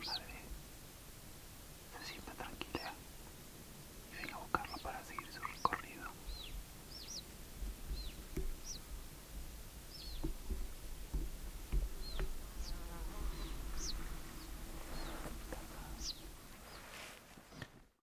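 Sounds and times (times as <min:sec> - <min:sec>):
puma cubs chirping: 0:04.1 - 0:17.7.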